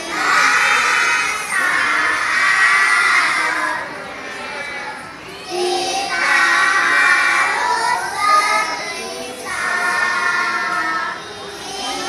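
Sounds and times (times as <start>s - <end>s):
children singing together: 0.0s - 12.0s.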